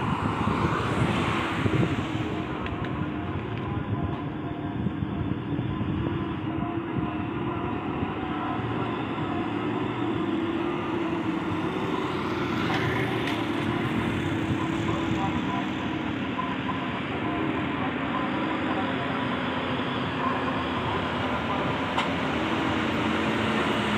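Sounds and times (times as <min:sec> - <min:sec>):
truck diesel engines droning: 0:00.0 - 0:23.9.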